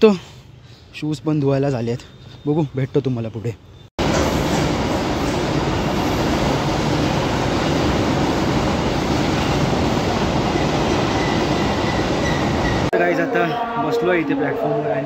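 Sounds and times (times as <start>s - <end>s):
freight train rumbling past: 4.0s - 12.9s.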